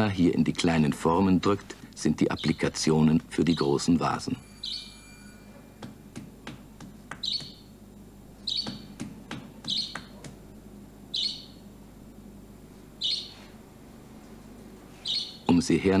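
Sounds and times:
budgerigar chirping: 0:02.3 - 0:02.6, 0:04.6 - 0:04.9, 0:07.2 - 0:07.7, 0:08.4 - 0:09.0, 0:09.6 - 0:10.2, 0:11.1 - 0:11.6, 0:13.0 - 0:13.5, 0:15.0 - 0:15.5.

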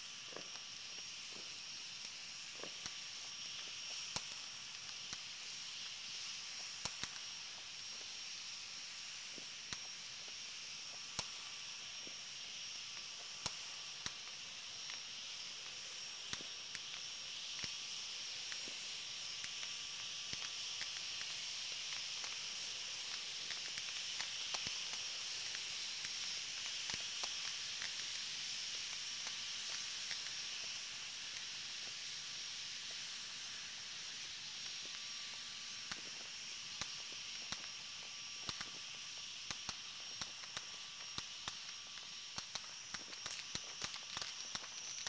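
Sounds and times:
high-pitched hiss: 0:00.0 - 0:45.0
distant fireworks popping: 0:00.2 - 0:08.2, 0:32.8 - 0:45.0.

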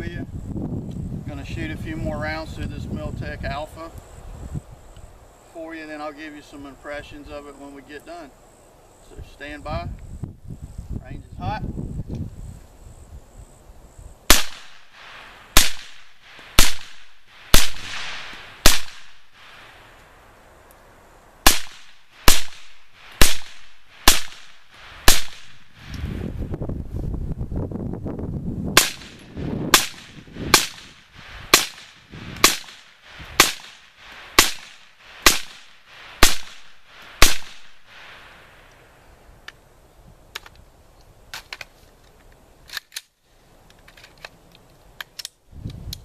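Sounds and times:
suppressed rifle shots: 0:14.3 - 0:19.2, 0:21.4 - 0:25.7, 0:28.8 - 0:38.2.

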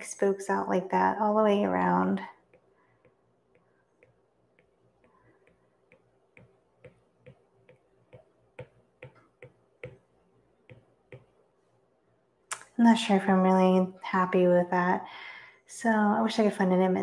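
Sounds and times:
stylus tapping on tablet screen: 0:02.4 - 0:11.5.

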